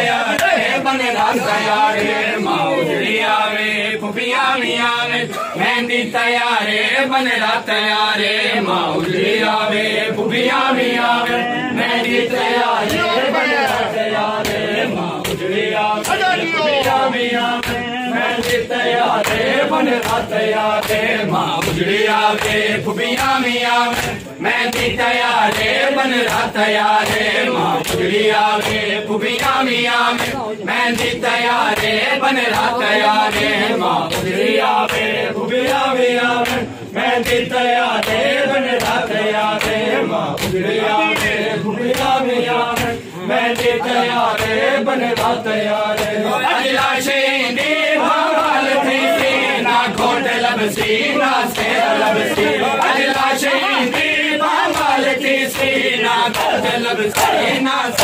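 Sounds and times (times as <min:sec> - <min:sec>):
men chanting together: 0:00.0 - 0:58.0
hands slapping chests: 0:12.8 - 0:28.8, 0:29.4 - 0:47.8, 0:48.4 - 0:58.0.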